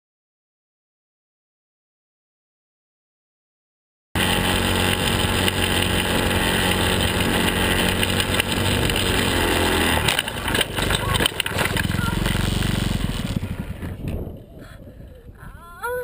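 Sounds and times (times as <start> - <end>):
knocks and bangs of kart rolling: 4.2 - 14.5
go-kart engine running: 4.2 - 15.1
wind rushing on microphone: 11.8 - 16.0.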